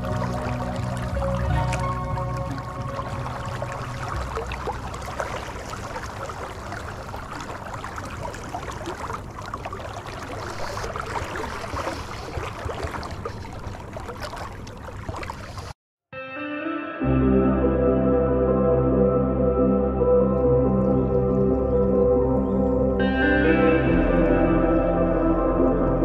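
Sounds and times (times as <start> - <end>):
river gurgling and splashing: 0.0 - 15.8.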